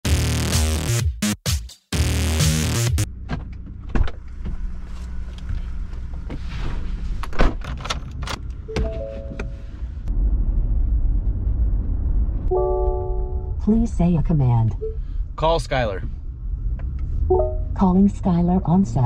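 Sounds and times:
truck cab rumble: 3.1 - 10.5
door thunks and key clicks: 7.3 - 9.0.

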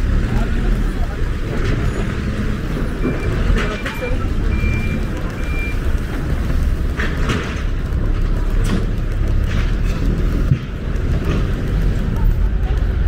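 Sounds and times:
rumble of passing vehicles: 0.0 - 13.0
vehicle reversing beeper: 1.8 - 6.0.

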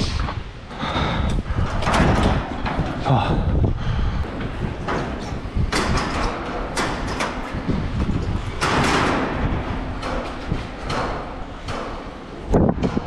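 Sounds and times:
low rumbling handling noise: 0.0 - 13.0
metal fence panels rattling: 4.8 - 13.0.

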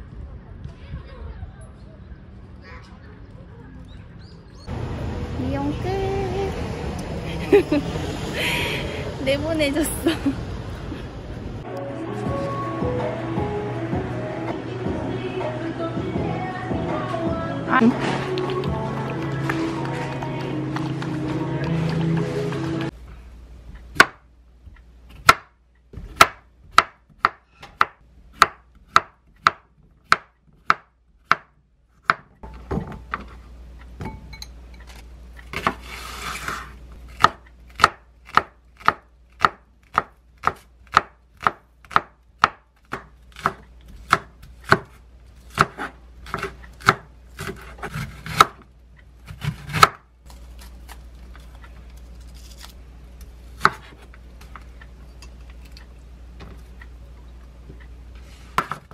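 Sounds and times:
knife chopping on wooden board: 25.2 - 32.2, 37.2 - 48.6, 49.3 - 50.0, 53.6 - 54.0.

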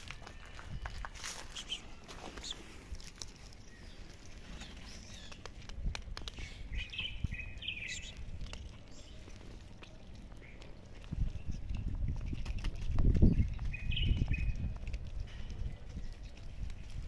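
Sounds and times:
cat crunching dry kibble: 0.0 - 17.0
high chirping: 1.4 - 2.6, 6.4 - 8.2.

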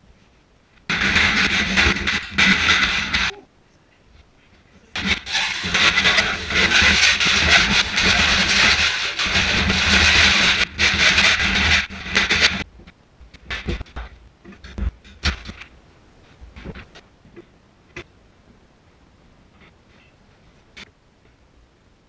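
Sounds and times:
hacksaw sawing sheet metal: 5.0 - 12.6.

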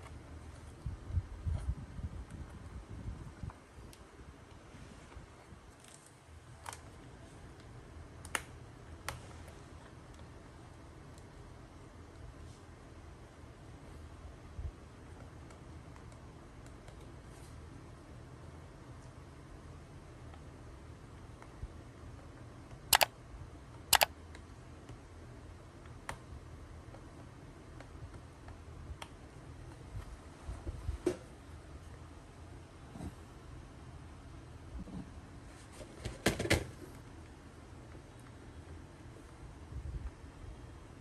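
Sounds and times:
low room hum: 0.0 - 41.0
small tools clicking on laptop: 22.2 - 23.2, 23.9 - 25.0
mouse double clicks: 22.9 - 23.1, 23.9 - 24.1.

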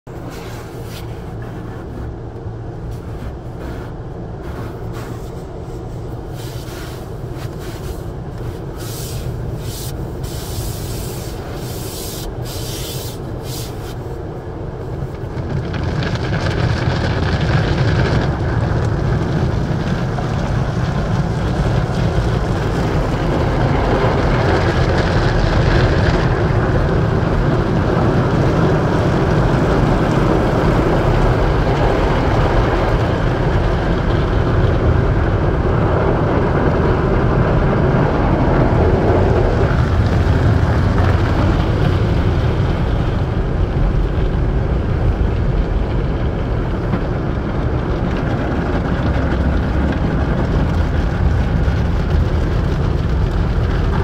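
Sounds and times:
cloth brushes scrubbing car: 0.1 - 14.1
water spraying on car: 0.1 - 54.0.

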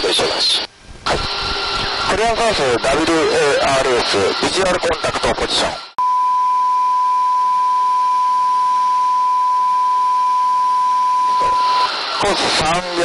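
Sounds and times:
steady electronic beep: 6.0 - 13.0.

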